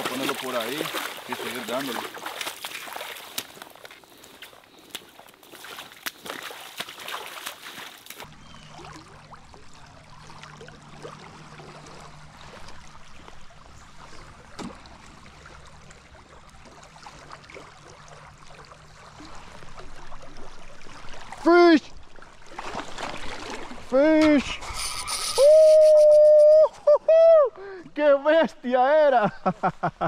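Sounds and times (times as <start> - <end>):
river water trickling: 0.0 - 30.0
low steady hum: 8.1 - 23.8.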